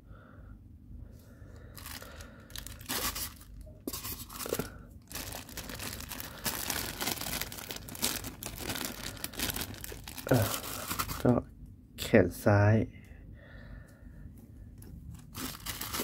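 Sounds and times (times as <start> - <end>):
plastic bag crinkling and tearing: 1.6 - 11.4, 15.1 - 16.0.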